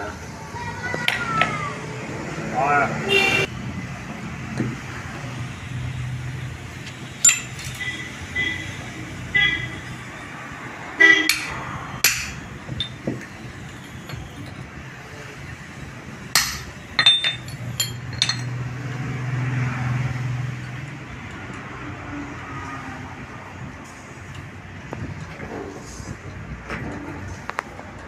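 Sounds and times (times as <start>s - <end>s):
steel parts clinking: 6.8s - 8.1s, 11.2s - 14.7s, 16.3s - 18.7s
hammer striking steel: 7.2s - 7.8s, 11.2s - 13.1s, 16.4s - 18.5s.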